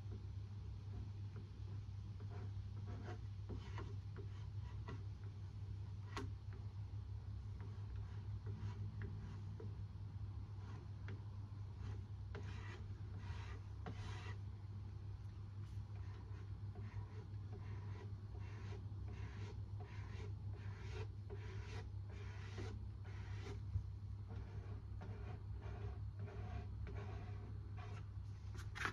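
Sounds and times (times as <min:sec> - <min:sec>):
steady low hum: 0:00.0 - 0:28.9
rubbing strokes on a surface: 0:02.2 - 0:05.0, 0:11.7 - 0:14.4, 0:15.6 - 0:23.7, 0:24.3 - 0:28.9.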